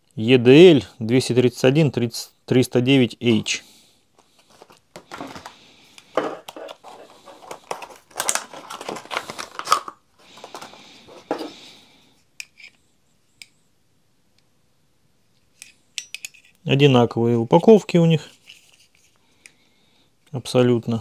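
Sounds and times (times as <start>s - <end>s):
plastic packaging crinkling: 4.2s - 11.6s.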